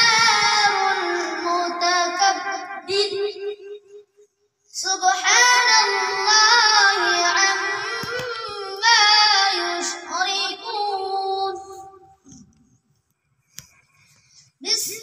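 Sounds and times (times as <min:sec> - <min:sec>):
boy singing: 0:00.0 - 0:03.8, 0:04.7 - 0:12.3, 0:14.6 - 0:15.0.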